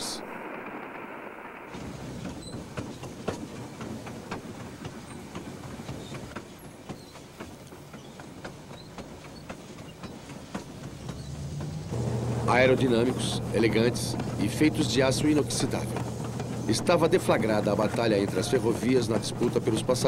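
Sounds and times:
diesel train rumble: 1.5s - 20.0s
wheels clicking over rail joints: 1.7s - 20.0s.

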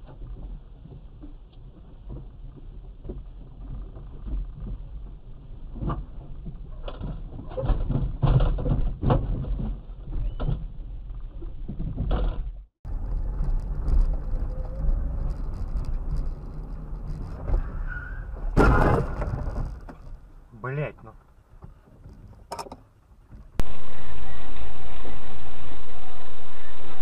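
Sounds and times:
knocks and thumps: 5.8s - 10.9s, 18.4s - 20.3s
low car interior rumble: 12.4s - 23.6s.

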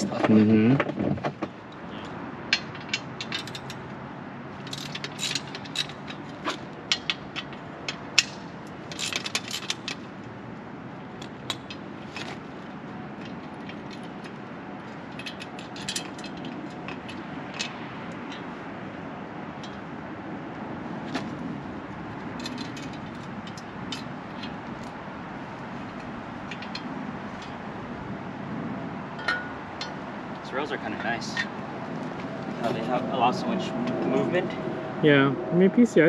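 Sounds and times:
metal clinks: 29.2s - 30.0s.

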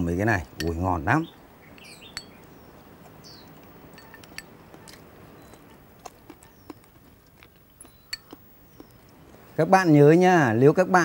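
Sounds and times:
faint chewing: 1.7s - 10.1s.

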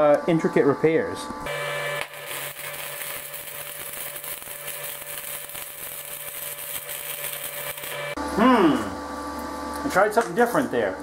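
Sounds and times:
welding arc crackling: 1.5s - 8.2s.

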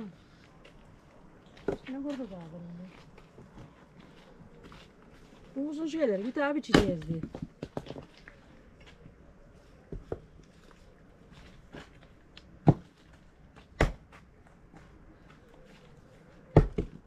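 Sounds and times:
axe chopping wood: 6.7s - 7.9s, 12.6s - 12.9s, 13.6s - 14.1s, 16.5s - 17.0s.

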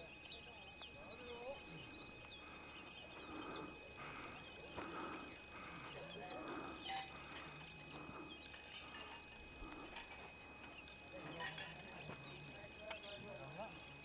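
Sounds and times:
distant voices: 0.0s - 14.0s.

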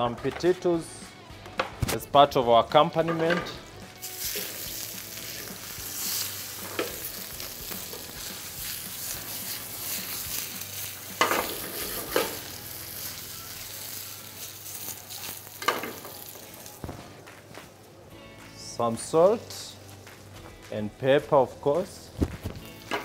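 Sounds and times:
potatoes sizzling in hot oil: 4.0s - 16.8s
steak frying in butter: 4.0s - 16.8s.

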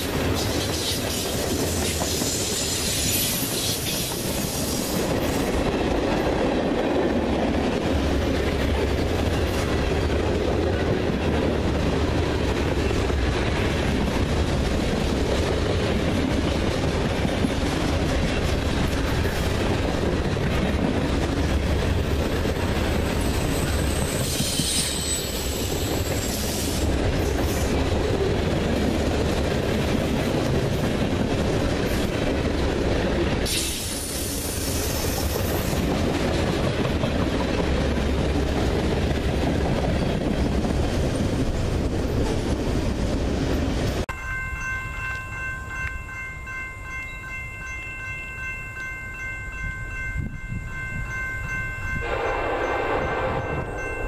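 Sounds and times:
train wheels rumbling and rattling: 0.0s - 44.2s
high wheel squeal: 0.7s - 5.0s, 23.2s - 26.9s.

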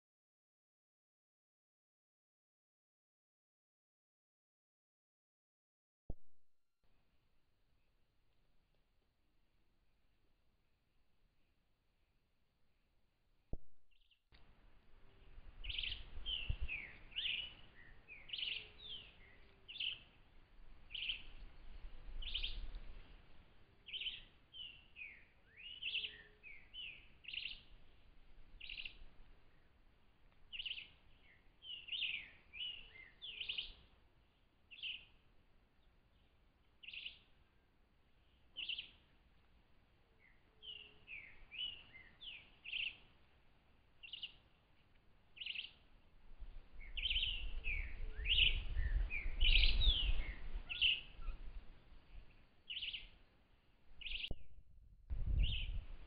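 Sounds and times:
faint low bird call: 15.0s - 20.1s, 46.8s - 53.2s
birds chirping: 15.1s - 22.8s, 23.8s - 28.0s, 28.6s - 29.8s, 30.5s - 35.2s, 35.8s - 39.2s, 40.2s - 43.1s, 44.0s - 46.1s, 46.8s - 54.4s.

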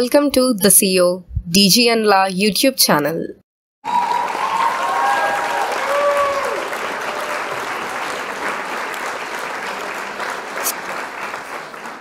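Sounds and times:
crowd applauding: 3.8s - 12.0s.

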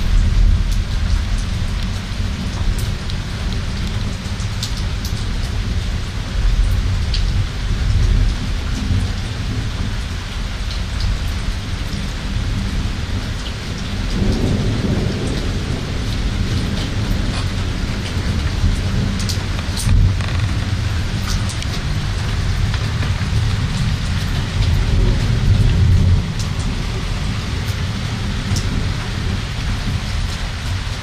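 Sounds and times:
heavy rain: 0.0s - 31.0s
raindrops ticking on surfaces: 0.0s - 31.0s
thunder rumbling: 13.8s - 30.9s.

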